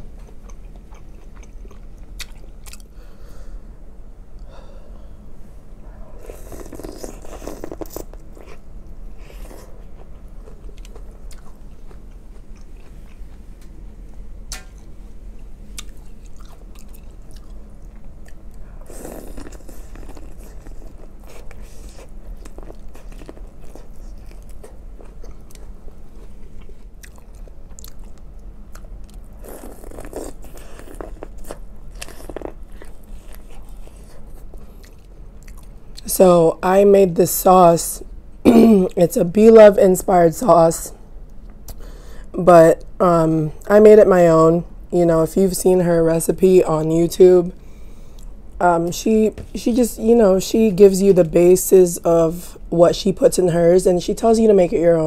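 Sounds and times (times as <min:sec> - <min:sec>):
wet chewing and mouth smacks: 0:00.2 - 0:02.9, 0:06.2 - 0:08.6, 0:09.3 - 0:13.7, 0:15.8 - 0:36.1.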